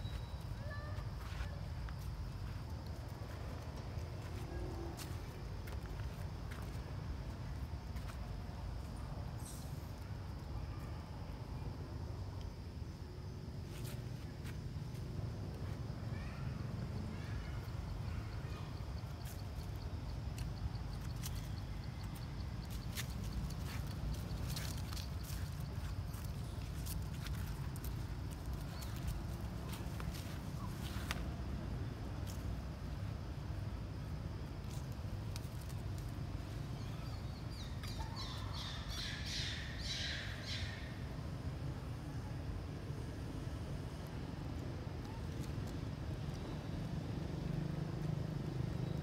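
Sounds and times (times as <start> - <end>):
dry leaves crackling underfoot: 0.0 - 8.3, 18.8 - 32.9, 34.1 - 40.0.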